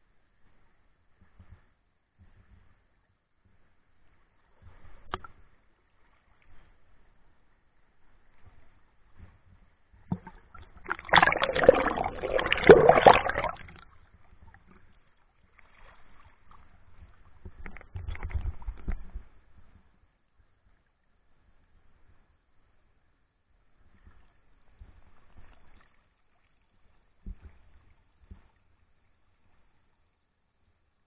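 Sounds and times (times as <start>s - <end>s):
underwater bubbles: 10.0s - 14.8s
river water splashing: 10.9s - 13.6s.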